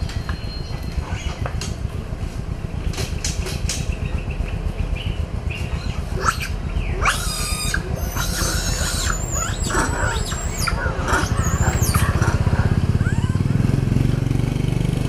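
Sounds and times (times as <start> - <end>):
steady low rumble: 0.0 - 14.6
baby monkeys squealing: 5.7 - 13.4.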